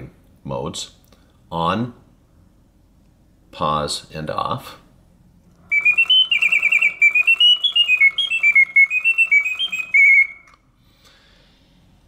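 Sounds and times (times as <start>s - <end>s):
mechanical birdsong whistling: 5.6s - 10.6s.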